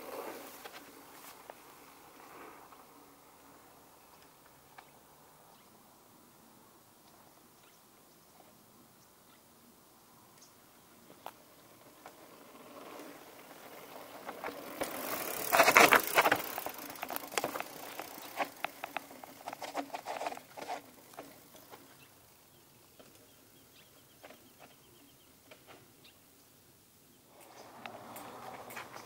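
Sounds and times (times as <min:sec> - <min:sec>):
bike tyres crunching on gravel: 0:00.0 - 0:03.4, 0:10.9 - 0:26.0, 0:27.3 - 0:29.0
bike ticking and rattling: 0:11.0 - 0:25.9, 0:27.3 - 0:29.0.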